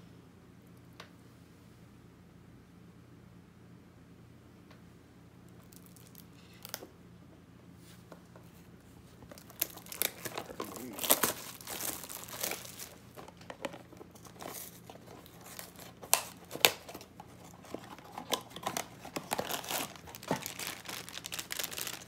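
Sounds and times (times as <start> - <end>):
packaging crinkling and tearing: 5.6 - 6.9, 9.2 - 22.0.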